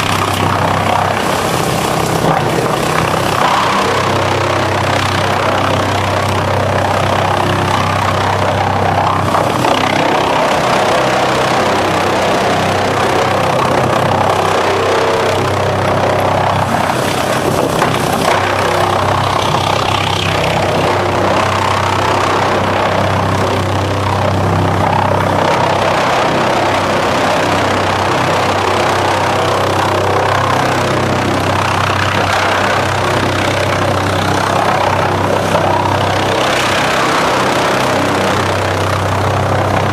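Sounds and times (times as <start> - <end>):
wood being chipped: 0.0 - 23.3
wood chipper humming: 0.0 - 39.9.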